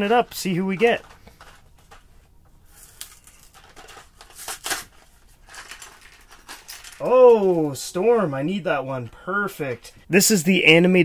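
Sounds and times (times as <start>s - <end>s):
foil packet crinkling and ripping: 2.7s - 7.8s.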